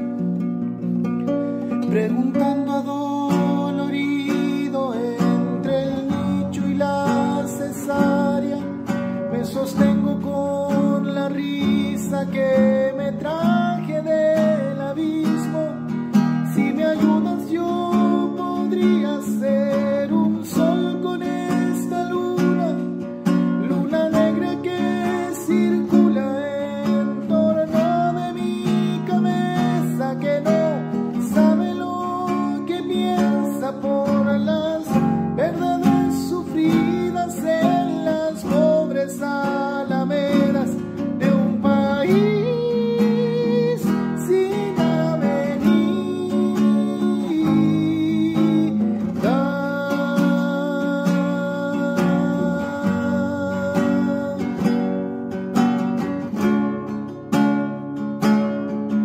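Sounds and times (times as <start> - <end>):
acoustic guitar strummed and picked: 0.0 - 59.0
man singing long held notes: 23.7 - 54.7.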